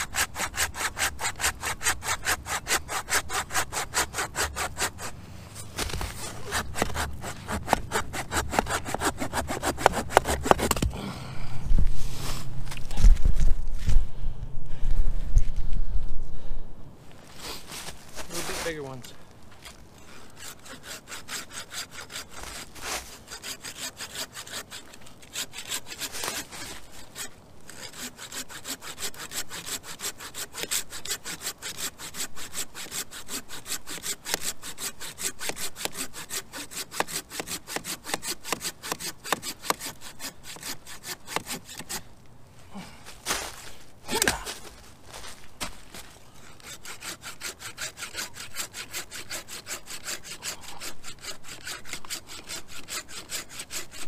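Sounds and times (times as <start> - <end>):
hand saw cutting through log: 0.0 - 10.9, 18.2 - 19.0, 20.1 - 42.1, 45.2 - 54.0.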